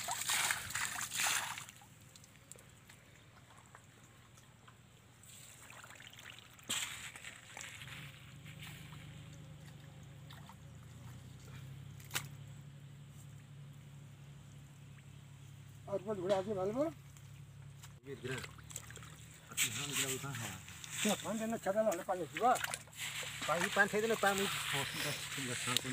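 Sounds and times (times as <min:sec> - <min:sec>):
water splash: 0:00.0 - 0:02.3, 0:05.2 - 0:10.6, 0:18.2 - 0:25.9
hands scooping wet mud: 0:00.0 - 0:02.7, 0:05.2 - 0:12.3, 0:18.1 - 0:25.9
mud squelching and dripping: 0:00.0 - 0:12.5, 0:17.0 - 0:25.9
low steady hum: 0:00.0 - 0:25.9.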